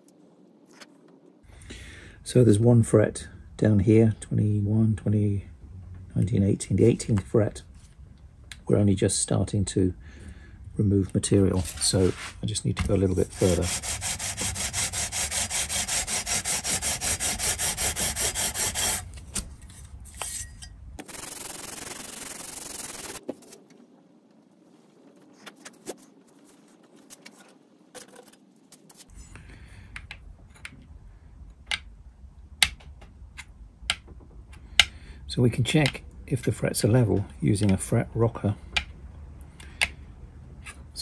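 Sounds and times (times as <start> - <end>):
file rubbing on metal frets: 13.2 - 19.0.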